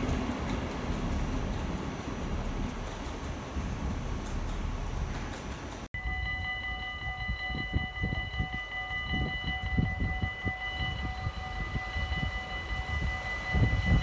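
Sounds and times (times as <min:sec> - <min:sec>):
level crossing bells ringing: 0:06.0 - 0:14.0.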